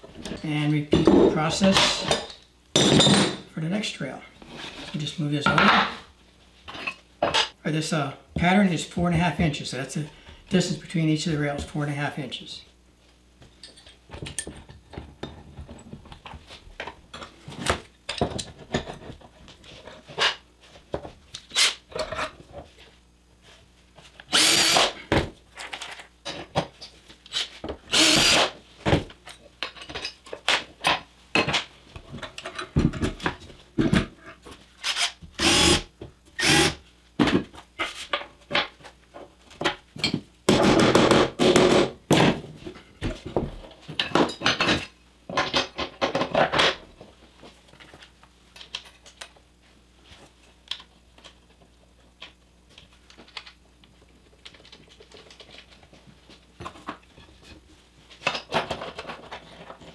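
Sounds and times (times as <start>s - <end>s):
cordless drill boring through metal: 24.3s - 25.0s, 27.9s - 28.5s, 34.8s - 36.8s
clamps and boards knocking: 40.5s - 42.4s.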